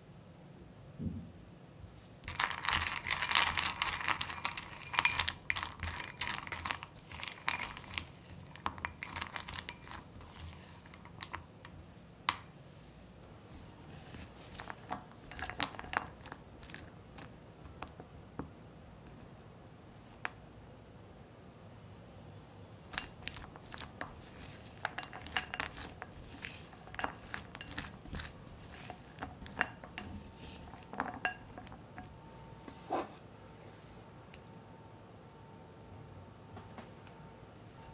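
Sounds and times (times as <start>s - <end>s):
nuts clicking against glass bowl: 2.2s - 11.8s, 14.5s - 17.3s, 22.9s - 32.2s.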